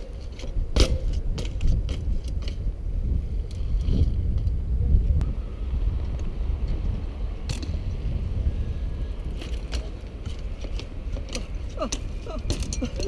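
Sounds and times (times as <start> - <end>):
wind rumble on microphone: 0.0 - 13.0
bike knocks and clicks: 0.1 - 2.7, 7.4 - 8.0, 9.3 - 13.0
bicycle rolling over bricks: 5.8 - 13.0.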